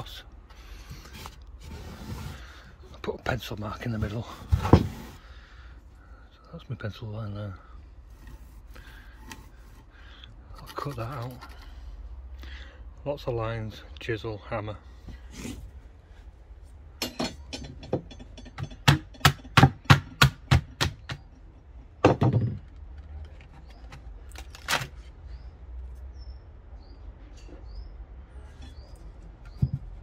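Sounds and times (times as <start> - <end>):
hammer and chisel on wood: 17.0 - 21.3
wood cracking: 22.1 - 25.0.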